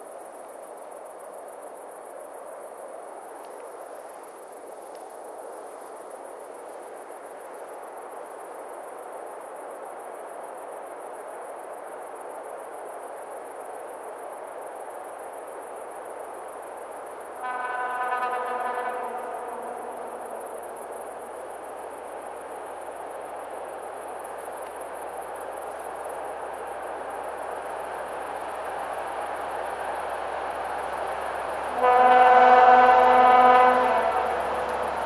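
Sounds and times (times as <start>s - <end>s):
crickets chirping: 0.0s - 35.0s
distant diesel locomotive rumble: 14.0s - 35.0s
locomotive horn chord: 17.4s - 20.1s, 31.7s - 35.0s.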